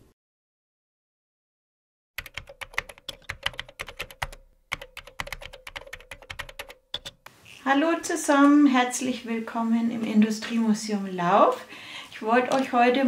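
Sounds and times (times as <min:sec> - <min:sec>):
keyboard key clicks: 0:02.2 - 0:07.3.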